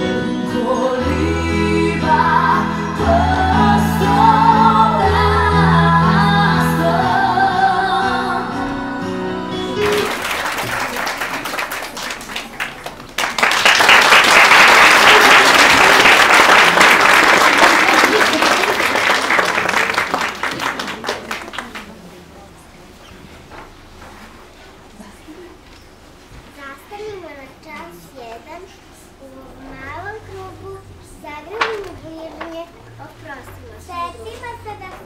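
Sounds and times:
song with singing and bass: 0:00.0 - 0:09.8
audience applause: 0:09.8 - 0:22.1.

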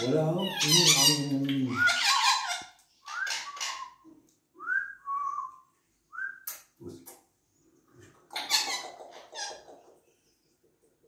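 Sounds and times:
harsh scratchy parrot calls: 0:00.0 - 0:04.0, 0:08.3 - 0:10.0
parrot whistling: 0:03.0 - 0:04.0.

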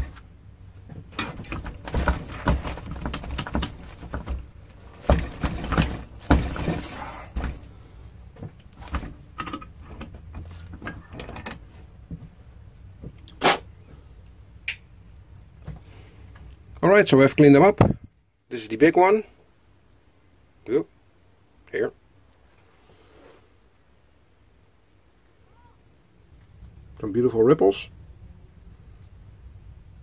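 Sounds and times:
metal clanking and rattling: 0:00.0 - 0:00.2, 0:00.8 - 0:11.8.

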